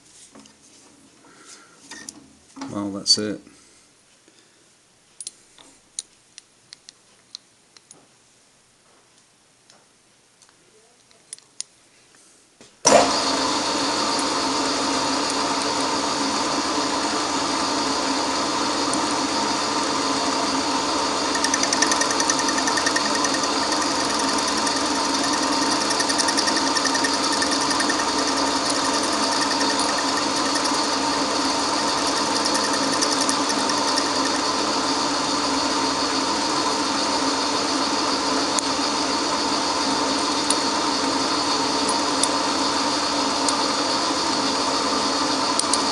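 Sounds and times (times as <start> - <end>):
milling machine running: 20.5 - 35.5.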